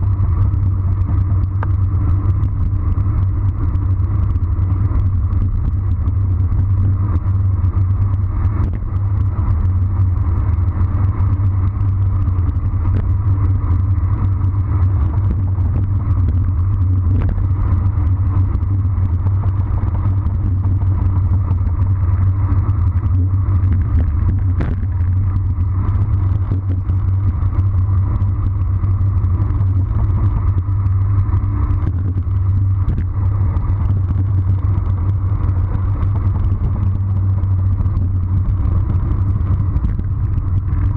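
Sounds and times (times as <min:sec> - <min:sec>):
tyre noise on asphalt: 0:00.0 - 0:40.9
wind rushing over microphone: 0:00.0 - 0:40.9.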